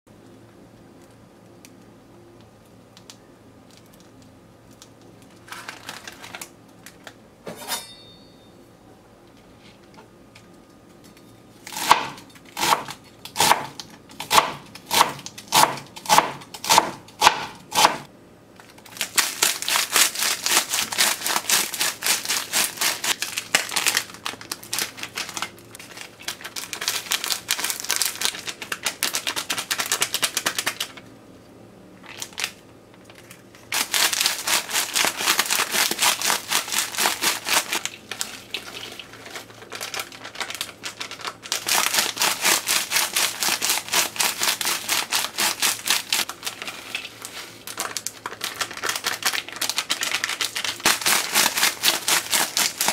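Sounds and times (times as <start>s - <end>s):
snacks crushed in crinkly wrappers: 3.0s - 7.2s, 18.5s - 31.1s, 32.0s - 52.9s
knife chopping cabbage on board: 11.7s - 18.0s.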